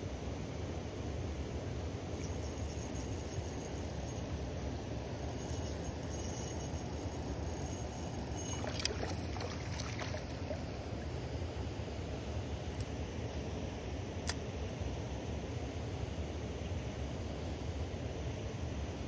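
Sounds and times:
fish splashing in water: 0:07.0 - 0:11.2.

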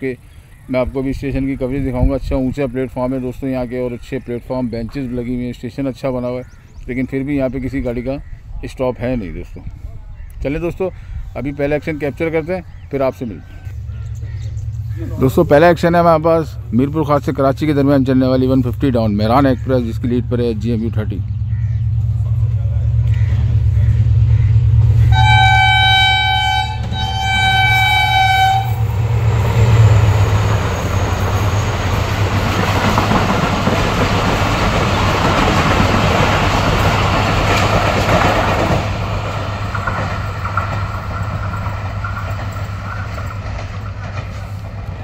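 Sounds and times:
locomotive engine droning: 0:00.0 - 0:45.0
train wheel clatter: 0:21.3 - 0:45.0
train horn blasts: 0:23.1 - 0:32.0.

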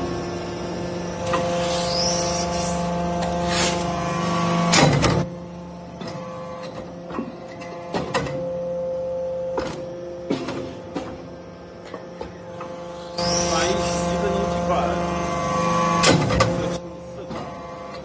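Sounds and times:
machine hum and whine: 0:00.0 - 0:18.0
machine clunks and knocks: 0:09.5 - 0:12.8.

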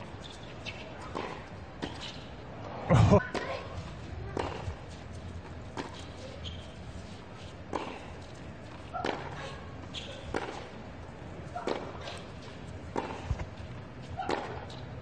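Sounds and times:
crowd hum: 0:02.4 - 0:04.7
racket hitting tennis ball: 0:09.0 - 0:09.4, 0:10.2 - 0:10.8, 0:11.5 - 0:12.3, 0:14.2 - 0:14.8.

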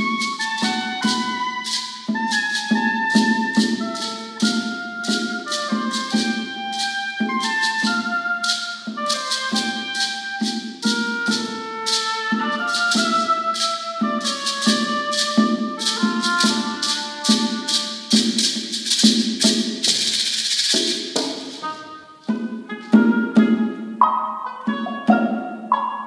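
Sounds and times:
oboe melody: 0:00.0 - 0:18.7, 0:21.4 - 0:26.0
maraca shaking: 0:00.0 - 0:26.0.

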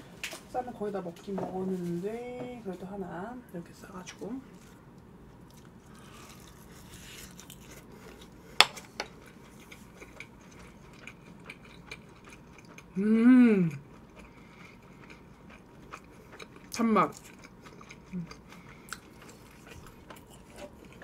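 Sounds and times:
person chewing food: 0:04.6 - 0:13.0, 0:13.7 - 0:21.0
person humming mmm: 0:13.0 - 0:13.8.

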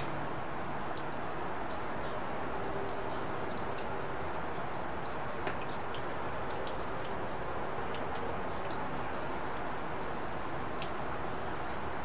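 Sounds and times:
drops ticking and dripping: 0:00.0 - 0:12.0
steady rain hiss: 0:00.0 - 0:12.0.

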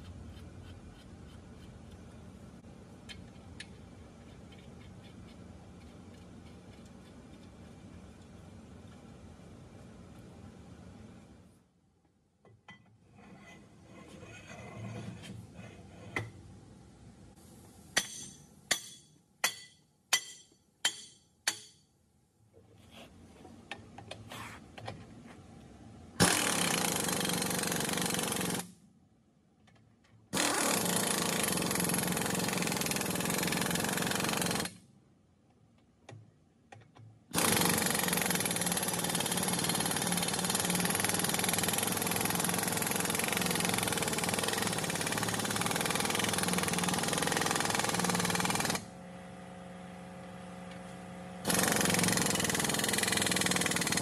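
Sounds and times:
pneumatic impact wrench running: 0:26.2 - 0:28.7, 0:30.4 - 0:34.8, 0:37.3 - 0:48.9, 0:51.4 - 0:54.0.

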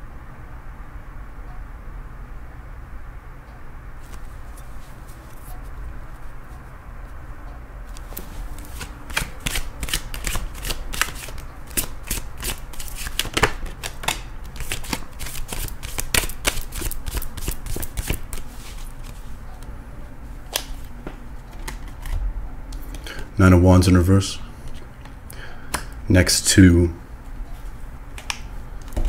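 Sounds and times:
cards being shuffled: 0:08.0 - 0:19.3.

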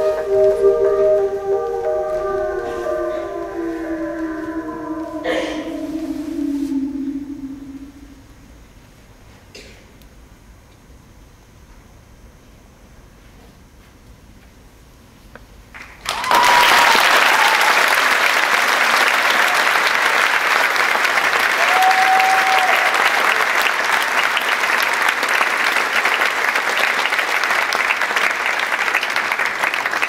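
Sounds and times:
audience applause: 0:15.8 - 0:30.0.

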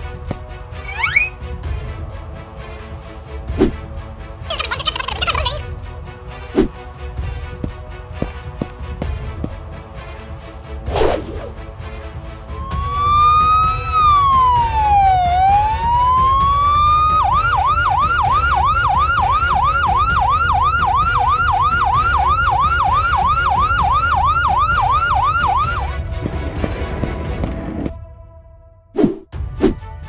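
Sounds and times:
ambulance siren wailing and yelping: 0:00.8 - 0:01.4, 0:04.5 - 0:05.6, 0:12.6 - 0:26.0.

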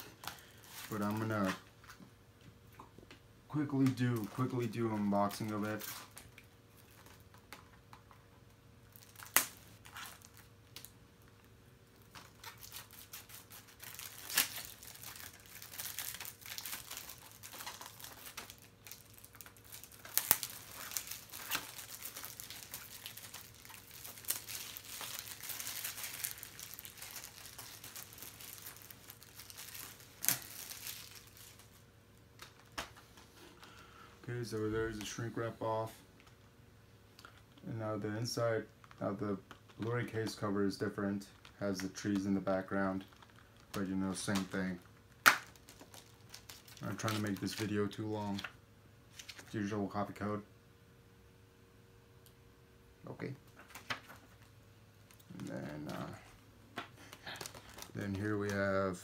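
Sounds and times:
plastic shrink wrap crinkling: 0:00.0 - 0:02.0, 0:03.6 - 0:33.1, 0:41.2 - 0:49.6, 0:53.5 - 0:59.0.

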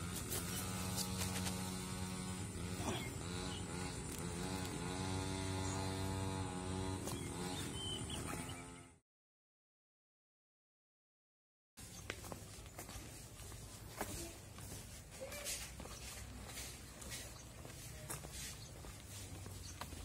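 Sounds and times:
motor humming: 0:00.0 - 0:09.0.

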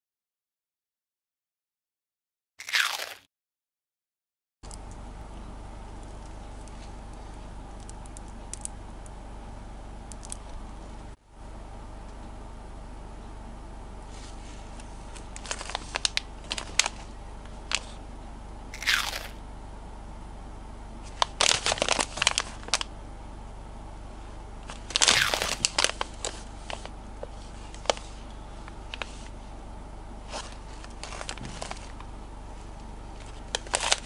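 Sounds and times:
plastic pouches crinkling: 0:14.8 - 0:18.0, 0:18.8 - 0:19.4, 0:21.1 - 0:22.9, 0:24.6 - 0:28.2, 0:30.3 - 0:32.1, 0:33.1 - 0:34.0.

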